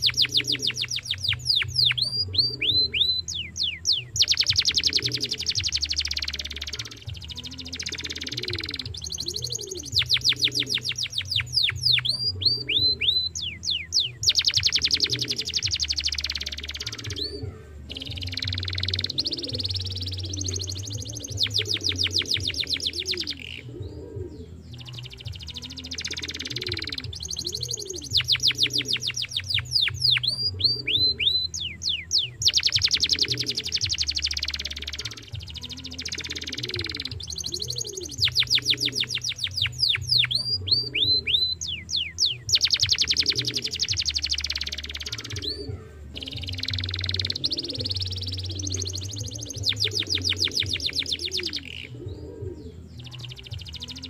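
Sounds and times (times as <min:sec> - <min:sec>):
canary singing trills: 0:00.0 - 0:54.0.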